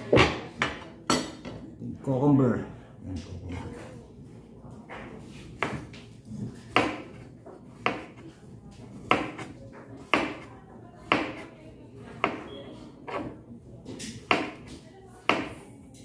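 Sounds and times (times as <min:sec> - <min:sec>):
knife slicing cucumber: 0:05.6 - 0:11.5, 0:14.0 - 0:15.5.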